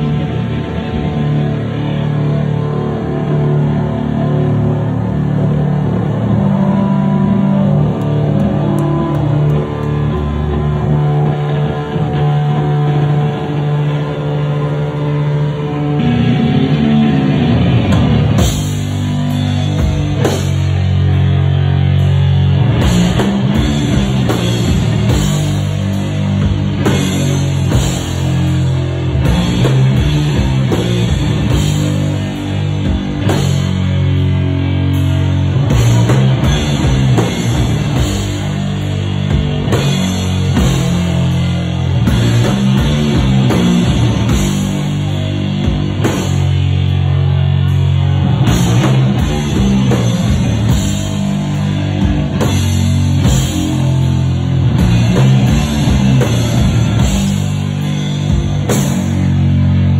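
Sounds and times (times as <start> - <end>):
distorted guitar and bass riffs: 0.0 - 59.9
drum kit with crashing cymbals: 17.6 - 59.9.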